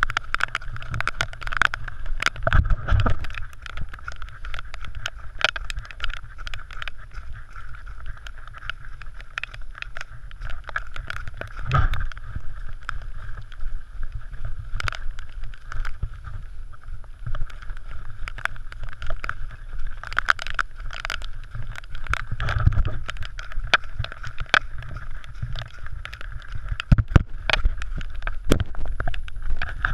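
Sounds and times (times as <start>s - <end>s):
wind rumble on camera: 0.0s - 29.9s.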